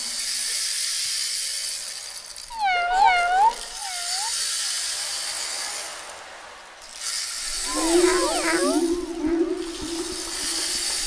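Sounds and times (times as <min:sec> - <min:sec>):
whistle-like swoops: 0:07.6 - 0:11.0.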